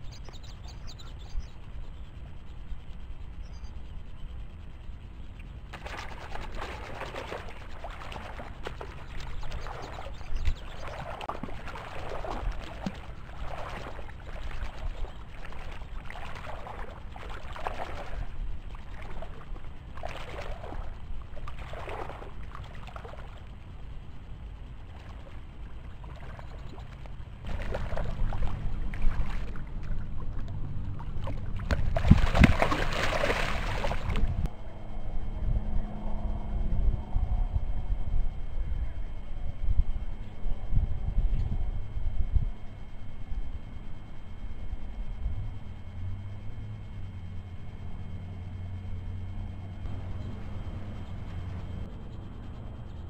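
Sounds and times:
water splashing: 5.8 - 23.5, 24.9 - 34.5.

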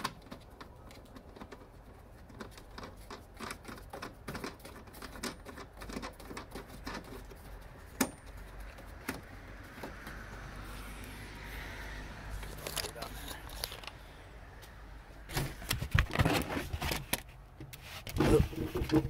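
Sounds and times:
small clicks taps and scrapes: 0.0 - 11.2, 12.4 - 14.0.

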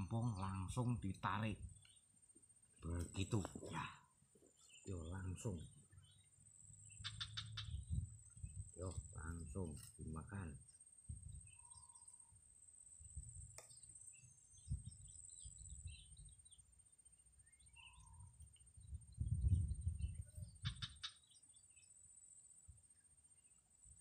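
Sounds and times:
low outdoor rumble: 0.0 - 11.6
faint bird chirps: 0.0 - 24.0.

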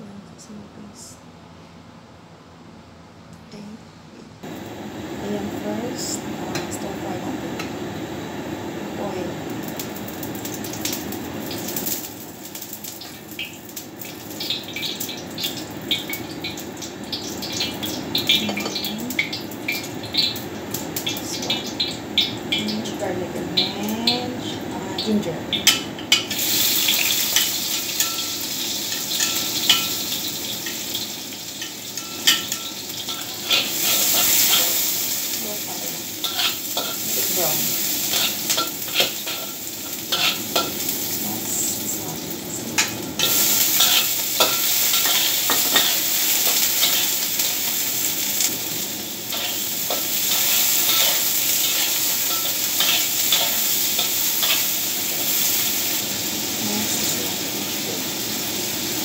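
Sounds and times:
oil sizzling in a wok: 4.4 - 59.0
spatula scraping a wok: 32.0 - 35.0, 36.2 - 37.0, 37.8 - 40.9, 43.2 - 47.8, 49.3 - 55.8.

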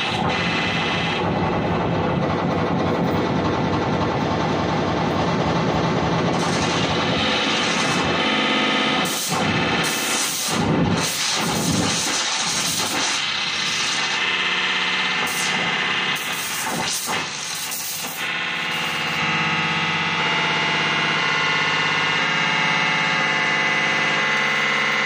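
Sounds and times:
harsh distorted electronic noise: 0.0 - 25.0.

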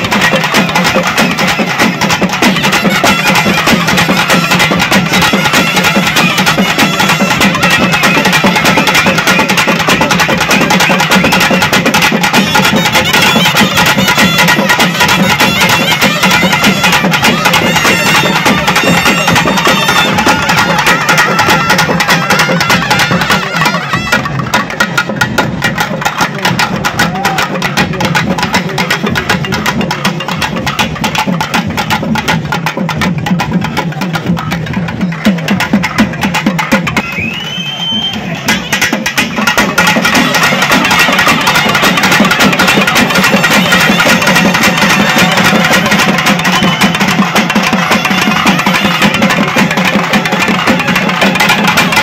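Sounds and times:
drums beaten with sticks: 0.0 - 52.0.

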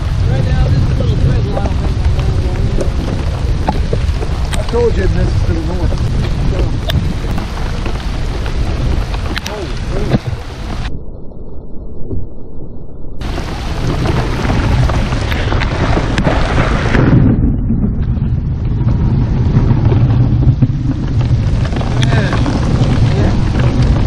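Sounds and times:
rain pelting a boat and water: 0.0 - 10.9, 13.2 - 17.3, 18.5 - 24.0
thunder rumbling: 0.0 - 24.0.

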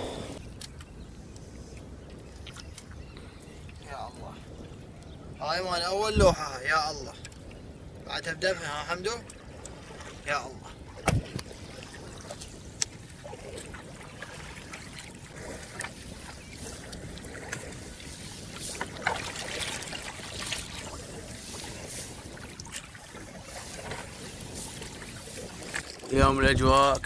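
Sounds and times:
water trickling and lapping: 0.0 - 27.0
small knocks and splashes: 2.2 - 3.9, 10.9 - 26.2.

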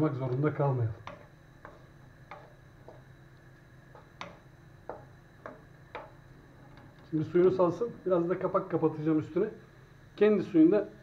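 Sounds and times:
wooden spoon knocking frying pan: 1.0 - 3.2, 3.9 - 6.2.

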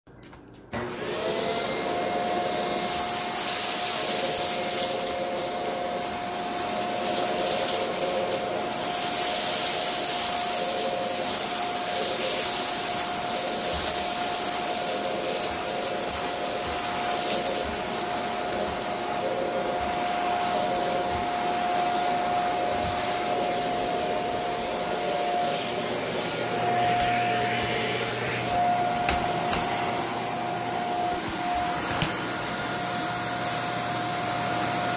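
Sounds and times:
vacuum cleaner whine: 0.6 - 34.9
salt sucked up by vacuum: 2.8 - 17.8.

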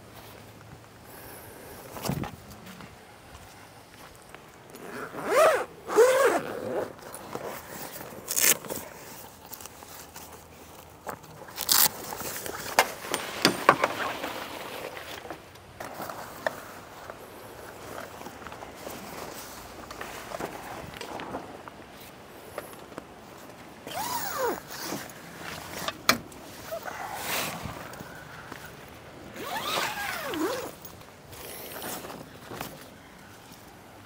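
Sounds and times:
zipper pulled open: 4.7 - 9.0, 23.8 - 25.9, 29.4 - 32.2
canvas scraping: 4.8 - 10.6, 29.4 - 32.8.

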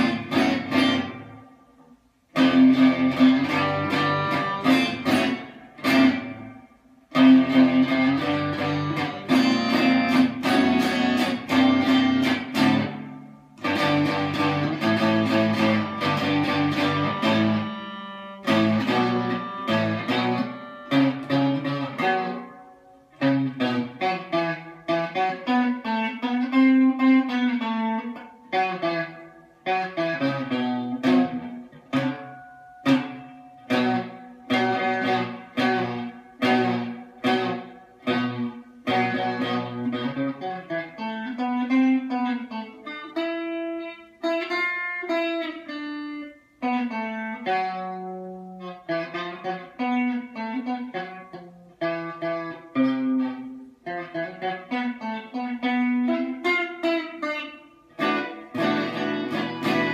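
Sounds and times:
electric guitar picked notes: 0.0 - 59.9.

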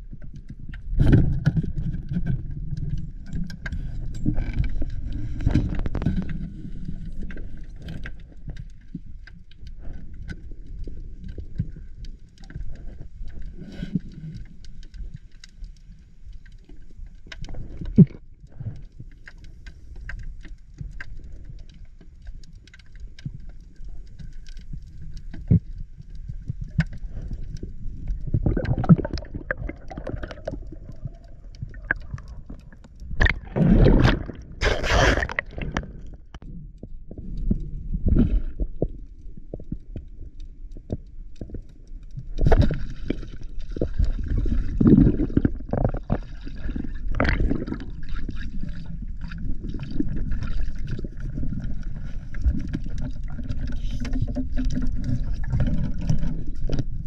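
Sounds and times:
underwater water gurgling: 0.0 - 57.0
bubbling bursts: 28.2 - 36.3, 43.7 - 48.7.

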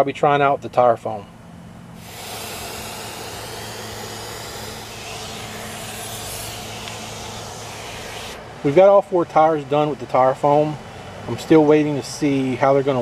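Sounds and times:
aerosol can spraying hiss: 2.0 - 8.4.

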